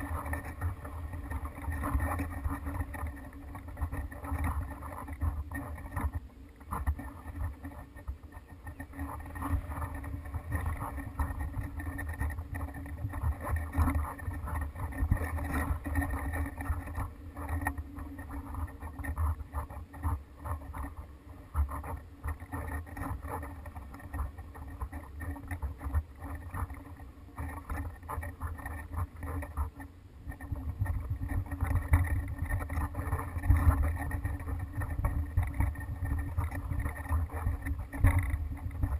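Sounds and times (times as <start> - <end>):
fast crackling rattle: 0.0 - 38.9
wind buffeting microphone: 0.0 - 38.9.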